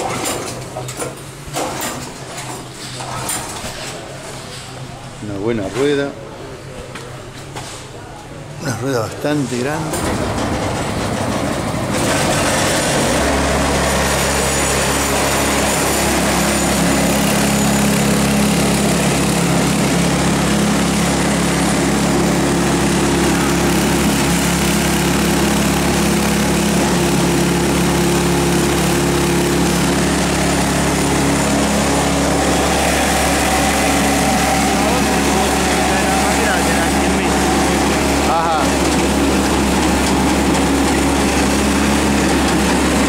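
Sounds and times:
small gasoline engine running: 10.0 - 43.0.

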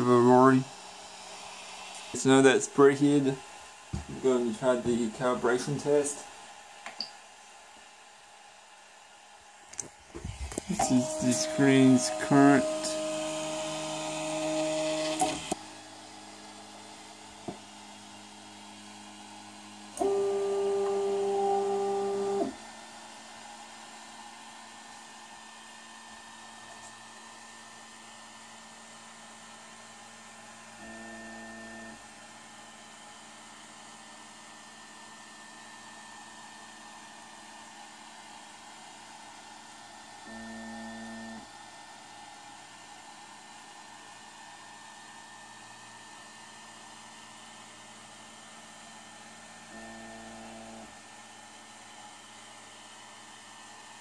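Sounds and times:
cooling fan whirring: 0.0 - 7.4, 9.6 - 28.5
stepper motor whines: 10.2 - 16.0, 19.8 - 22.6.

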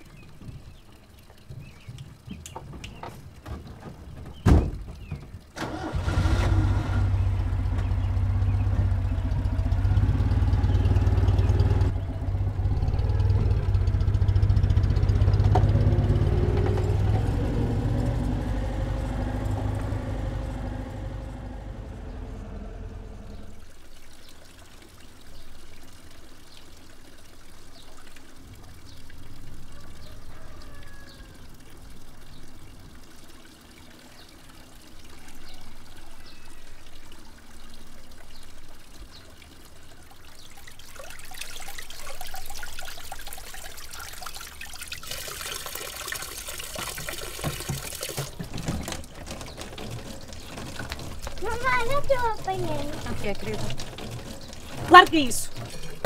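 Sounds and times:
tap water filling plastic bottle: 0.0 - 5.6, 23.6 - 56.0
low rumble: 7.2 - 23.8.

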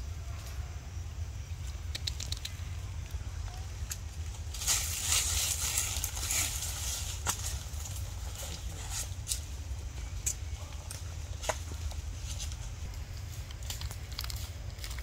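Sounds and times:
steady low rumble: 0.0 - 15.0
sharp clicks: 1.6 - 3.2
dry leaves rustling and crunching: 3.2 - 15.0.

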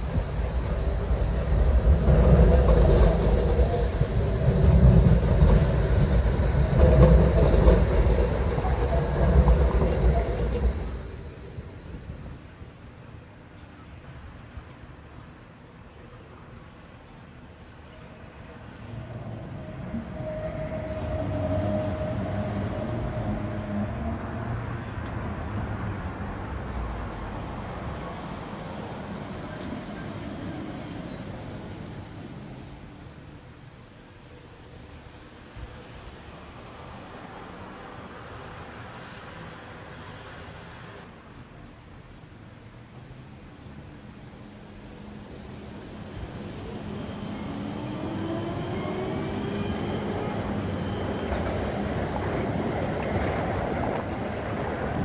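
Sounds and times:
model tram rumble: 0.0 - 55.0.

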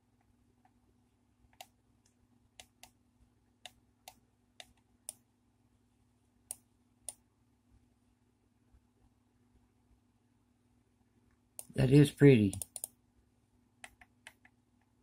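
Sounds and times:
faint steady hum: 0.0 - 15.0
computer mouse clicking: 1.5 - 3.0, 3.6 - 5.2, 6.5 - 7.2, 12.5 - 13.0, 13.8 - 14.9.

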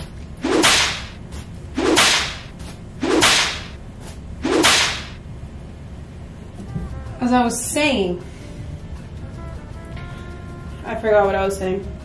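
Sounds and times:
wet hair swishing through air: 0.4 - 1.2.

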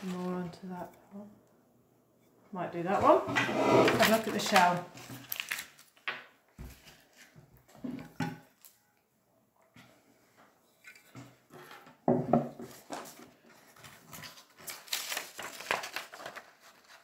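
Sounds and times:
stiff paper card rustling: 4.0 - 6.0, 12.7 - 17.0
objects knocking on wooden table: 12.0 - 12.6.

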